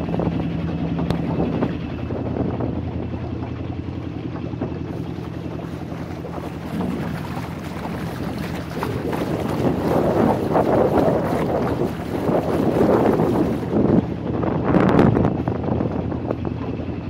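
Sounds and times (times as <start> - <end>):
water rushing and splashing: 0.0 - 16.3
boat engine running: 0.0 - 17.0.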